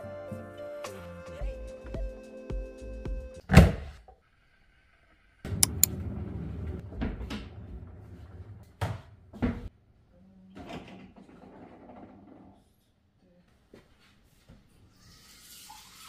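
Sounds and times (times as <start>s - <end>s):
sharp clicks: 5.6s - 5.9s.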